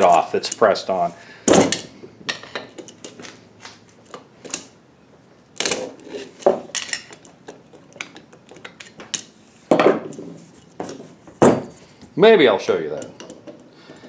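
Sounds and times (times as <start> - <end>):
metal tools clinking: 0.0 - 0.8.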